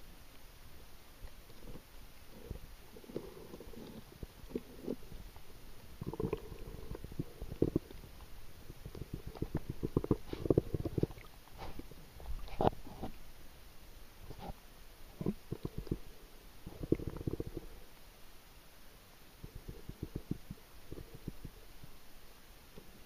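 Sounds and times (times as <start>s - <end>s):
underwater clicks and crackles: 1.2s - 13.3s, 14.2s - 16.1s, 16.7s - 17.7s, 19.4s - 22.0s.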